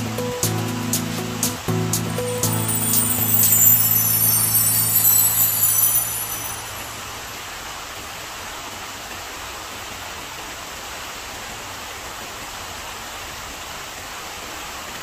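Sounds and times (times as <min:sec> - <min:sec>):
running water rushing: 0:02.3 - 0:07.2.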